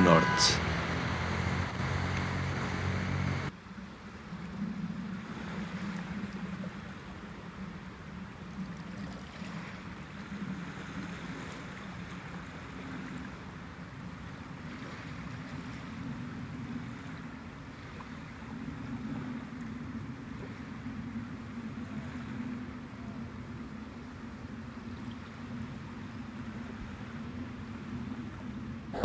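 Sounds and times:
sea surf: 0.0s - 3.5s
wind: 0.0s - 29.0s.

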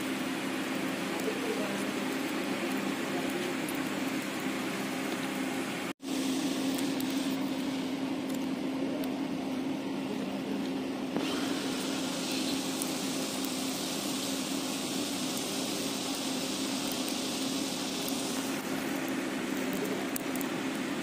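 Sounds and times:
low mechanical hum: 0.0s - 21.0s
hiss: 11.2s - 21.0s.

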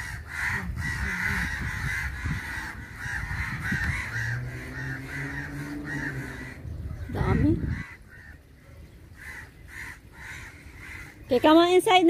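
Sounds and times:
crows cawing: 0.0s - 11.7s.

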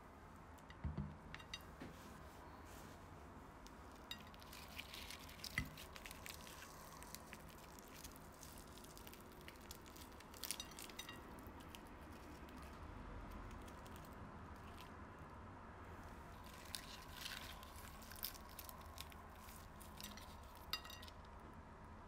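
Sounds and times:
fried chicken crust crackling: 3.9s - 15.1s, 16.0s - 21.3s.

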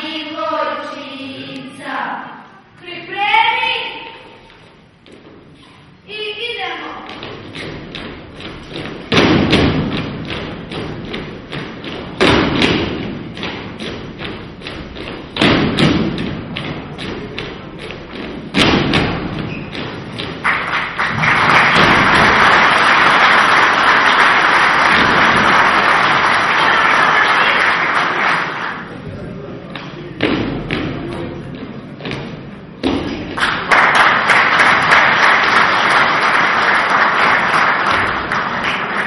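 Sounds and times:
heavy group stomp: 7.1s - 26.8s, 29.8s - 33.7s, 37.3s - 38.5s
audience applause: 20.4s - 28.9s, 33.4s - 39.0s.

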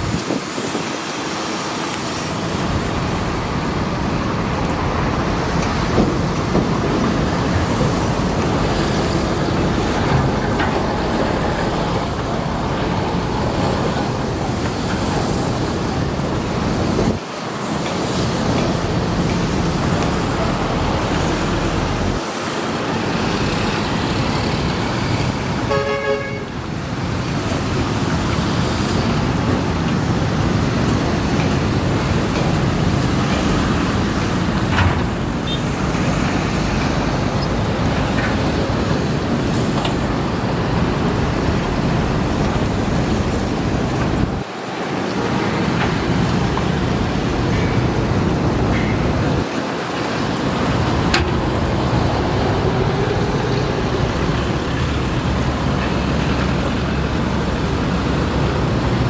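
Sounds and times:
excavator diesel engine and hydraulics: 0.0s - 59.0s
vehicle horn tooting: 25.7s - 26.6s.

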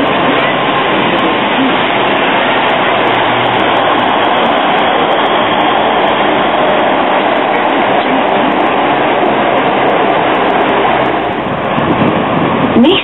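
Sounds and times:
low hum: 0.0s - 12.9s
tram rumble and hiss: 0.0s - 13.0s.

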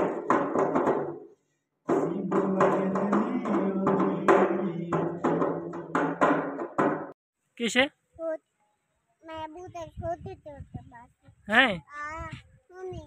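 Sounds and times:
hand drumming on vessel: 0.0s - 1.2s, 1.9s - 7.2s
man singing long notes: 1.9s - 6.1s.

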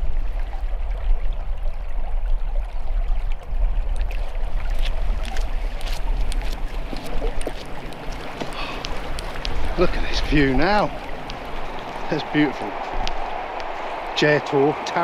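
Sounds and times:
wind rumbling on microphone: 0.0s - 14.9s
fast-running water rushing: 0.0s - 15.0s
faint clicks: 4.8s - 12.1s, 12.7s - 14.1s.

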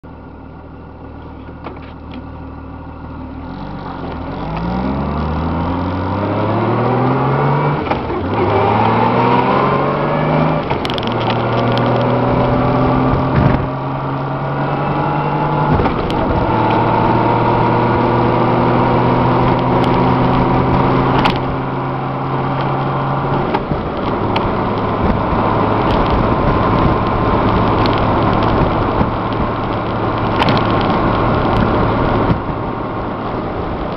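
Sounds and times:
wind and road noise: 0.0s - 33.9s
motorcycle engine accelerating: 3.2s - 33.9s.

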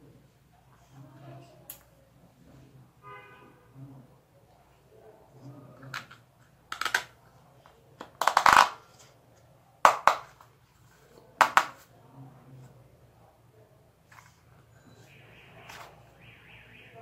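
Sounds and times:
plastic toy parts clicking: 5.9s - 7.1s.

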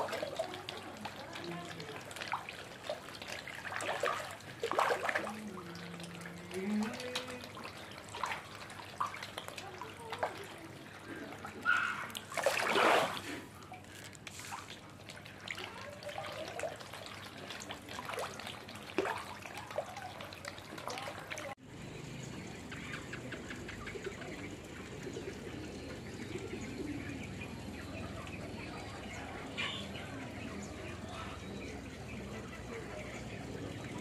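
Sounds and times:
drips: 0.0s - 34.0s
water splashing and trickling: 0.0s - 34.0s.

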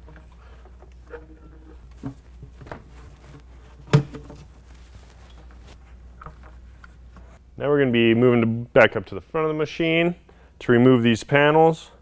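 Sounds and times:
light knocks and bumps: 0.0s - 6.6s.

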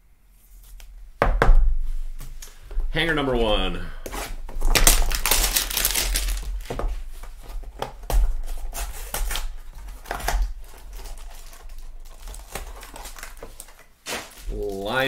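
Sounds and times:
wrapper tearing and crinkling: 4.6s - 6.8s, 8.4s - 15.0s.

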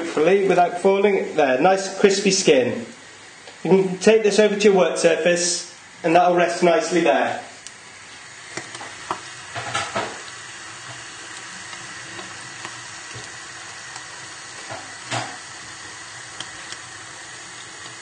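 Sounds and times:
fish deep-frying in oil: 7.6s - 18.0s.

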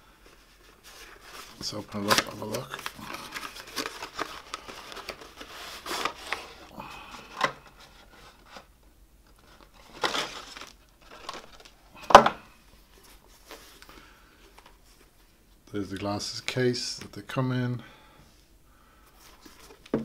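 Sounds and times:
cardboard box crinkling: 0.5s - 6.8s, 9.4s - 11.8s.

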